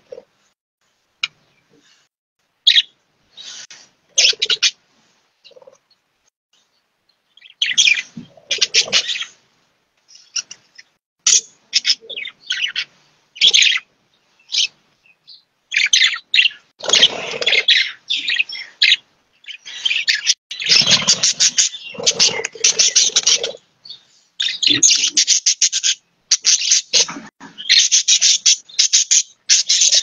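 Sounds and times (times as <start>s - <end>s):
budgerigars chattering: 4.2s - 4.8s, 7.4s - 9.3s, 11.3s - 13.8s, 15.7s - 23.6s, 24.4s - 30.0s.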